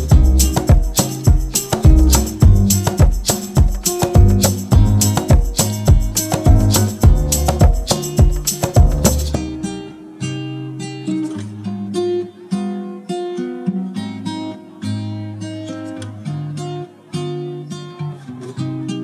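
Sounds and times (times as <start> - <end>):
acoustic guitar picked tune: 0.0 - 19.0.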